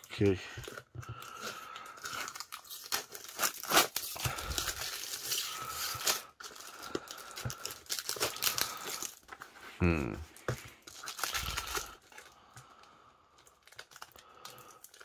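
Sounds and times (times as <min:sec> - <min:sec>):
adhesive tape ripping off cardboard: 0:02.6 - 0:04.2.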